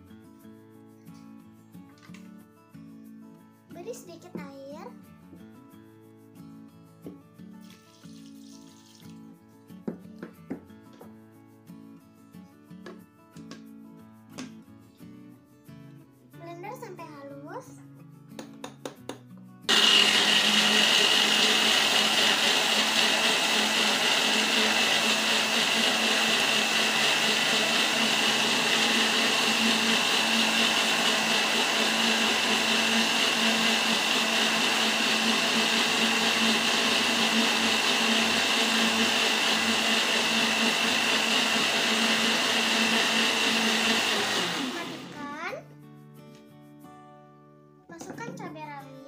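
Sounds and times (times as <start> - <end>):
blender motor whining: 19.7 - 45.2.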